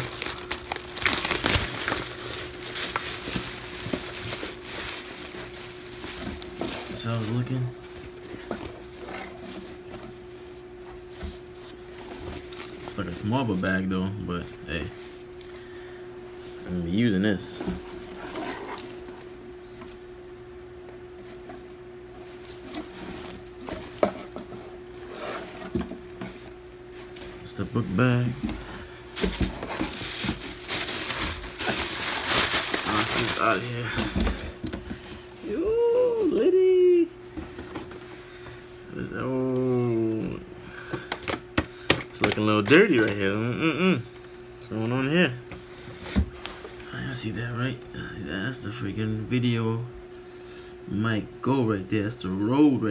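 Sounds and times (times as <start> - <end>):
fabric backpack rustling: 0.0 - 7.5
plastic bag crinkling: 0.0 - 7.7, 29.2 - 34.4
steady hum: 0.0 - 52.9.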